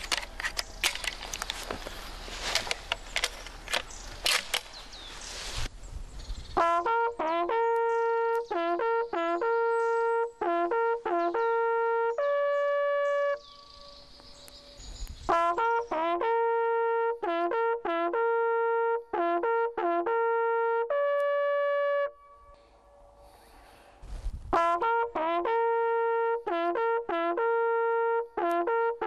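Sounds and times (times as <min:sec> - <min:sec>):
hunting horn fanfare: 0:06.6 - 0:14.0, 0:15.3 - 0:22.6, 0:24.5 - 0:29.0.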